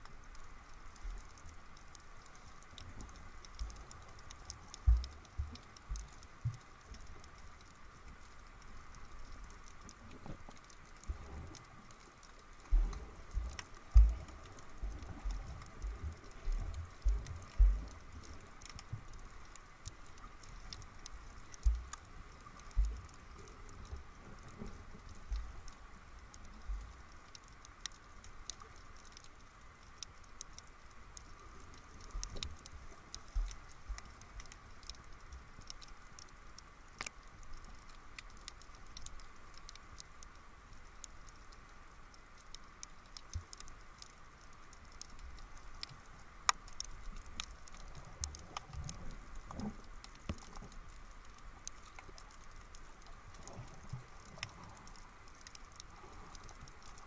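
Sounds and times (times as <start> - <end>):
steady hiss: 0.0 - 57.0
underwater clicks and crackles: 0.0 - 57.0
dull low bumps: 4.8 - 6.6, 12.6 - 19.2, 21.0 - 25.6.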